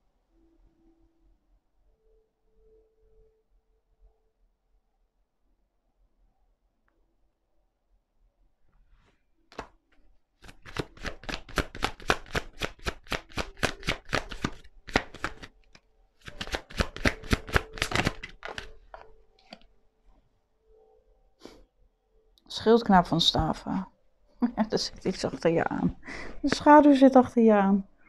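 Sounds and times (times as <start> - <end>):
cards being shuffled: 9.5 - 9.8, 10.4 - 15.6, 16.2 - 19.6.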